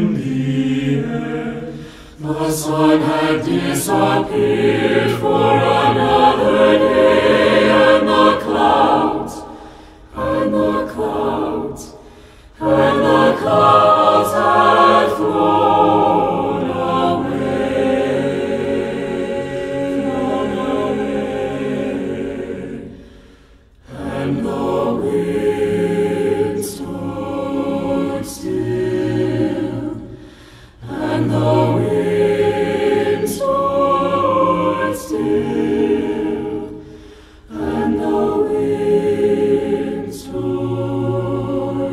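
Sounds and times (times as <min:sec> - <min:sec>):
choir singing a cappella: 0:00.0 - 0:41.9.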